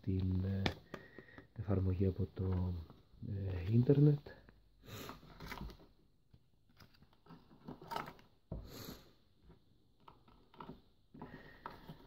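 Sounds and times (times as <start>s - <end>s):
hands handling box and cable: 5.2s - 8.6s, 9.4s - 12.0s.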